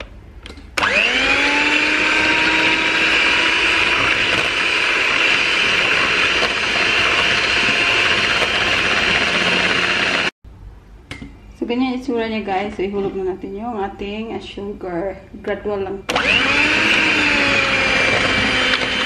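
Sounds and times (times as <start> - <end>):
electric hand mixer whining: 0.8 - 10.4, 16.1 - 19.0.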